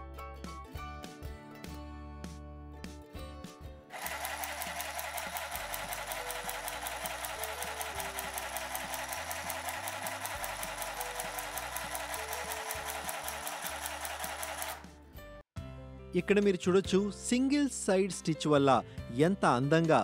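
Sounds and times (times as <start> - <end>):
handheld sewing machine stitching: 3.9 - 15.0.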